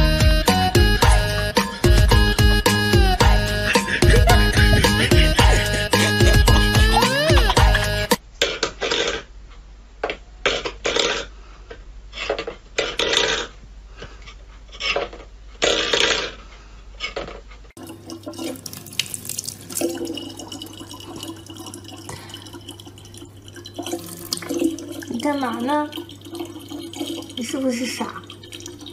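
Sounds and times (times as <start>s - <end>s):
tap water running into bottle: 17.8s - 28.9s.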